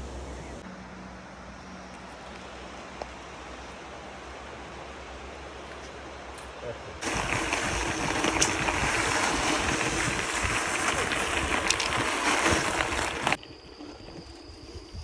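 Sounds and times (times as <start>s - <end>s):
tyres rolling over gravel: 7.0s - 14.1s
wind on microphone: 7.0s - 15.0s.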